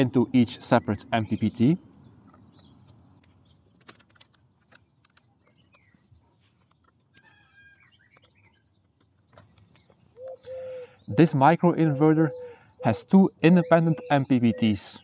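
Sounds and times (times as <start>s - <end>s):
faint bird chirps: 5.0s - 15.0s.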